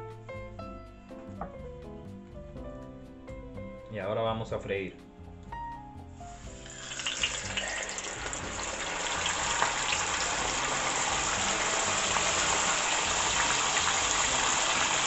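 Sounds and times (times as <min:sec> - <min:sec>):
fish sizzling in hot oil: 0:06.3 - 0:15.0.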